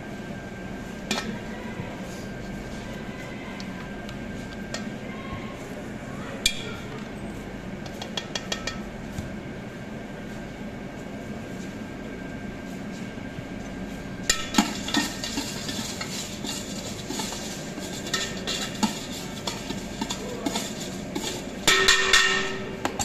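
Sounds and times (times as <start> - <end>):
puffed rice rattling in metal tin: 14.4 - 22.0.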